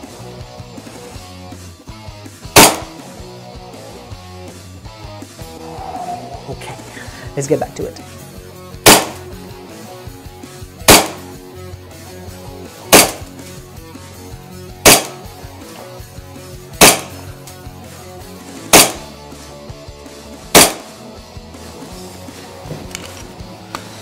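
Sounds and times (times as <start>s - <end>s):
airsoft pistol shots: 2.5s - 3.0s, 8.8s - 9.3s, 10.8s - 11.4s, 12.9s - 13.3s, 14.8s - 15.3s, 16.8s - 17.3s, 18.7s - 19.1s, 20.5s - 21.0s
guitar music: 2.8s - 10.5s.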